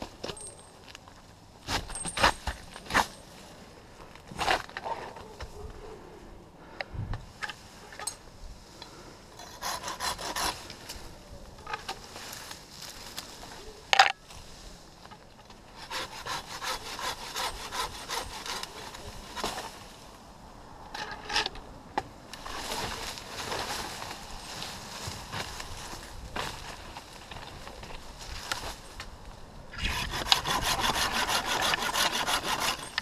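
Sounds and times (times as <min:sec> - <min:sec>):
hand saw cutting wood: 0:09.4 - 0:10.7, 0:15.8 - 0:19.6, 0:29.8 - 0:33.0.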